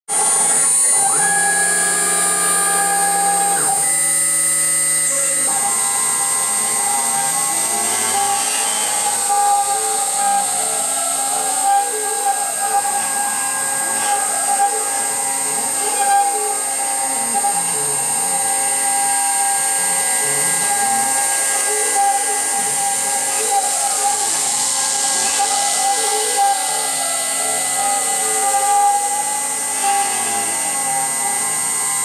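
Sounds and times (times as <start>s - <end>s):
spindle high whine: 0.1s - 32.0s.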